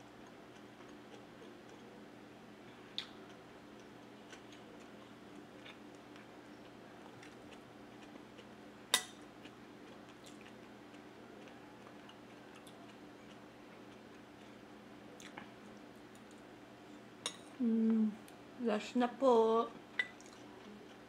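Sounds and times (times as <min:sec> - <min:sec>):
chewing: 0:00.2 - 0:01.9, 0:02.9 - 0:08.6, 0:09.2 - 0:16.5, 0:19.9 - 0:21.0.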